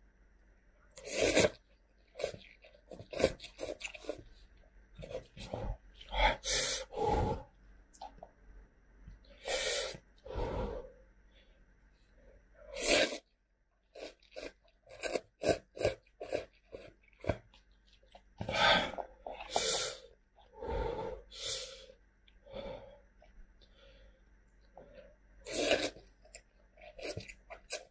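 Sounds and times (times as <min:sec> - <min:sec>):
person slurping noodles: 0:01.0 - 0:01.6, 0:12.7 - 0:13.2, 0:25.4 - 0:26.1
wet chewing: 0:01.0 - 0:04.3.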